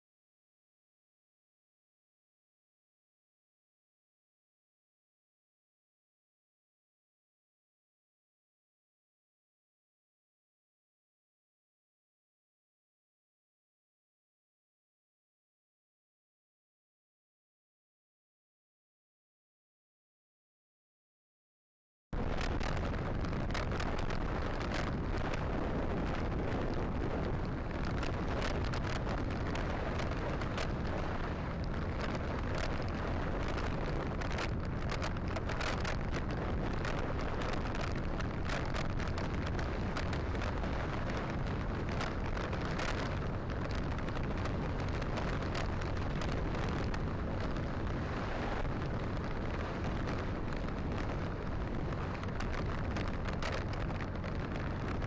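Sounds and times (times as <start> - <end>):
motorcycle engines rumbling: 22.2 - 55.0
wind on microphone: 22.2 - 55.0.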